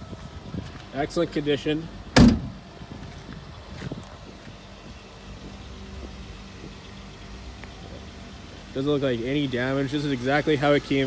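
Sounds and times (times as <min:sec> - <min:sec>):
car engine idling: 0:00.0 - 0:11.0
car door slamming: 0:02.2 - 0:02.6.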